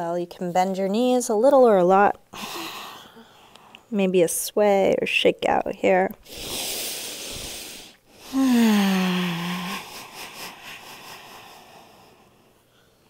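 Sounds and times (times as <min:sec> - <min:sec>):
woman sighing: 0:02.3 - 0:03.4, 0:08.2 - 0:09.9.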